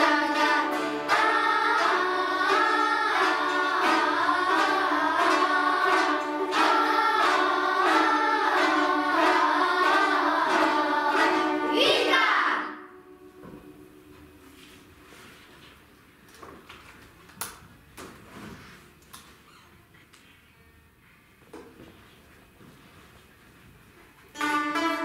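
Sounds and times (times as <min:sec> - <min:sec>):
children singing: 0:00.0 - 0:14.1
plucked zithers: 0:00.0 - 0:14.6, 0:24.4 - 0:25.0.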